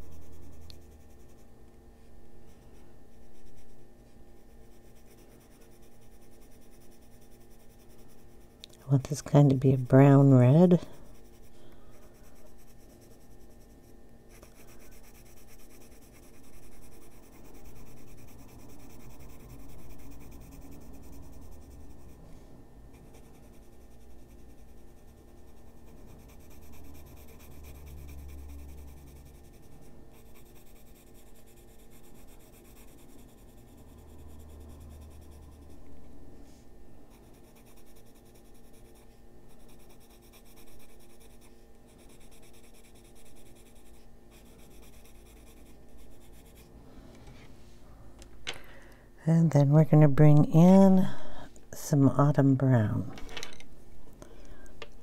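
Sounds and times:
pencil scratching on paper: 0:00.0 - 0:01.5, 0:02.5 - 0:03.8, 0:04.4 - 0:22.3, 0:22.9 - 0:35.8, 0:37.1 - 0:46.7.

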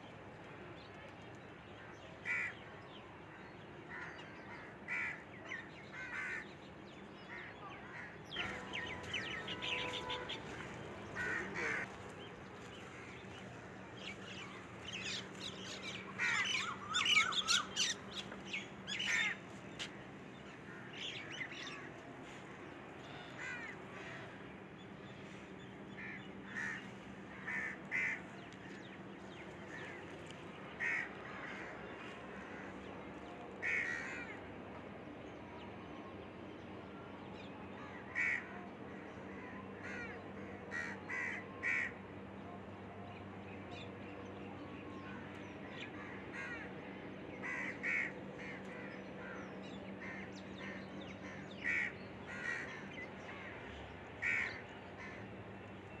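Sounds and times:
steady low hum: 0:00.0 - 0:56.0
birds cawing: 0:02.2 - 0:02.6, 0:03.9 - 0:06.6, 0:07.3 - 0:34.4, 0:37.8 - 0:42.1, 0:45.0 - 0:56.0.

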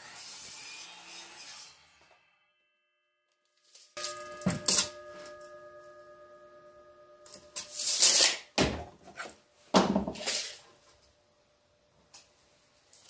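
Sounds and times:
metal clink with ringing tone: 0:04.0 - 0:07.8.

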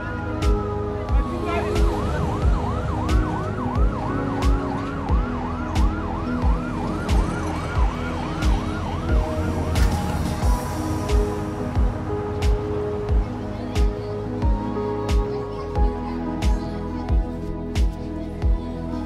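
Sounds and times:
music with thumping beat: 0:00.4 - 0:18.6
siren yelping: 0:01.2 - 0:10.5.

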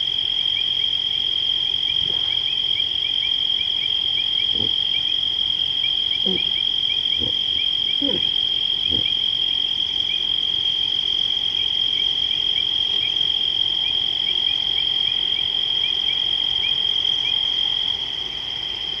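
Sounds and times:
insect short chirps: 0:01.8 - 0:05.2, 0:05.8 - 0:10.2.

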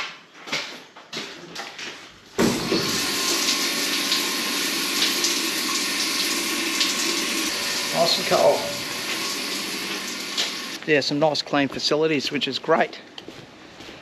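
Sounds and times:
shower water splashing: 0:02.4 - 0:10.8.

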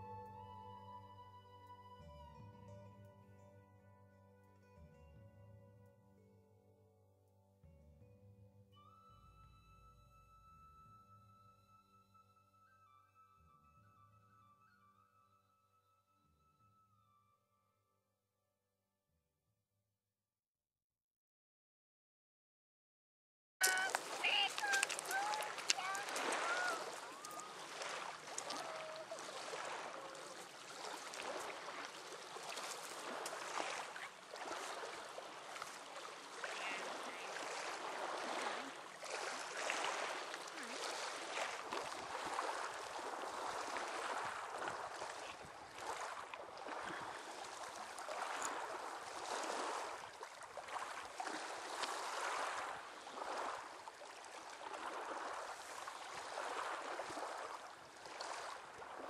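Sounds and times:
surf on pebbly beach: 0:23.6 - 0:59.0.

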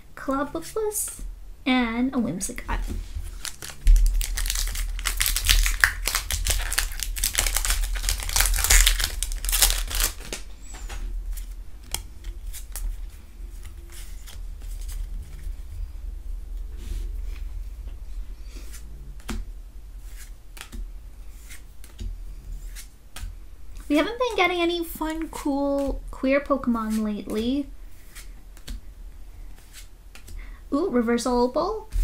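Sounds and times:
cards clicking and sliding: 0:03.2 - 0:12.9
foil wrapper crinkling and tearing: 0:03.3 - 0:10.5.

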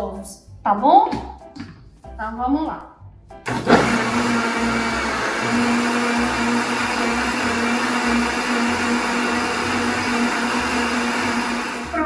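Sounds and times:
blender running: 0:03.5 - 0:12.0.

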